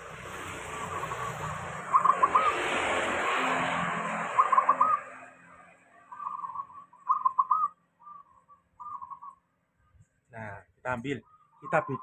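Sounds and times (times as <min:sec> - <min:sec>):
passing vehicle: 0:00.0 - 0:07.6
dove cooing: 0:00.9 - 0:02.8, 0:04.3 - 0:05.2, 0:06.1 - 0:09.4, 0:11.2 - 0:12.0.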